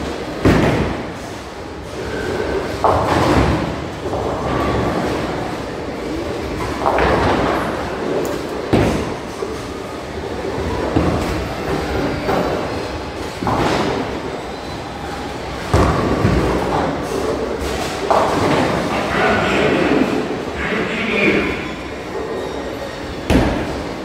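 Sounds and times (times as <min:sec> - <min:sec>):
bowling balls rolling: 0:01.9 - 0:14.4, 0:15.2 - 0:20.4
bowling alley din: 0:15.3 - 0:24.0.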